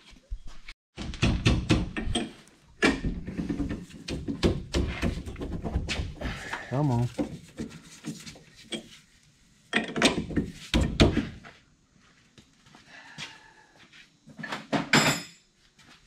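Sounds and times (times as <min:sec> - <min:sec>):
metal parts thunking and knocking: 0:09.7 - 0:11.2.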